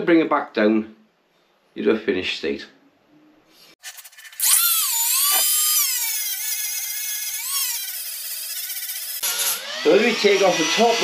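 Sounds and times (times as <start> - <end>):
rotary tool sanding metal: 3.8 - 11.0.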